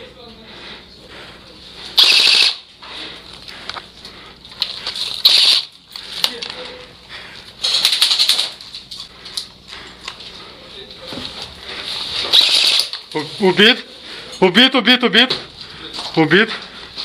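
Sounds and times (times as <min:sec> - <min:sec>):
airsoft guns firing: 0:02.0 - 0:02.6, 0:05.2 - 0:05.7, 0:12.4 - 0:13.0.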